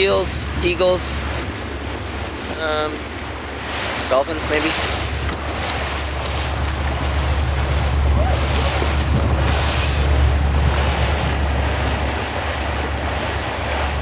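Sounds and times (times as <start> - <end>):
water rushing along boat hull: 0.0 - 14.0
wind buffeting microphone: 0.0 - 14.0.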